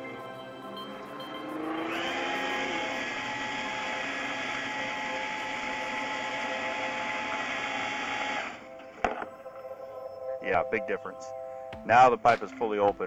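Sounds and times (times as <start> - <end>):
drain cleaning machine motor: 1.6 - 8.7.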